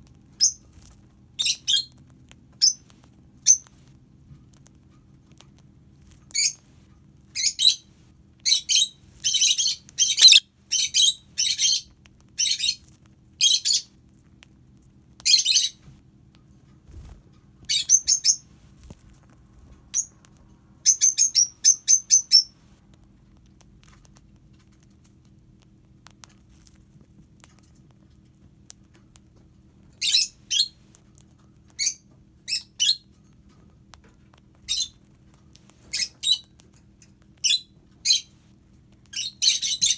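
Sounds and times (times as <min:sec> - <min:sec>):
lovebird chirping: 0:01.4 - 0:02.0, 0:02.6 - 0:03.7, 0:07.3 - 0:12.8, 0:13.4 - 0:13.9, 0:15.2 - 0:15.8, 0:17.7 - 0:18.5, 0:19.9 - 0:20.2, 0:20.8 - 0:22.6, 0:30.0 - 0:30.8, 0:31.8 - 0:33.1, 0:34.7 - 0:35.0, 0:35.9 - 0:36.5, 0:39.1 - 0:39.9.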